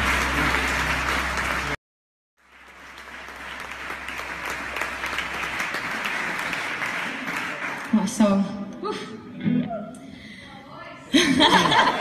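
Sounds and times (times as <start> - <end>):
audience clapping: 0.0 - 1.8, 2.4 - 8.4.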